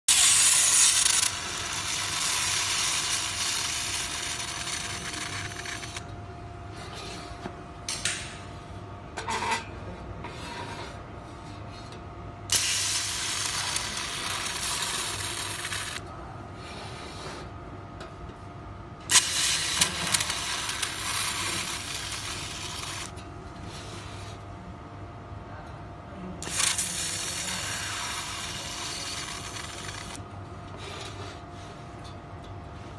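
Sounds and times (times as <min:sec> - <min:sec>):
laser welder hissing sizzle: 0:00.1 - 0:06.0, 0:12.5 - 0:16.0, 0:19.1 - 0:23.1, 0:26.4 - 0:30.2
faint machine hum: 0:00.1 - 0:32.9.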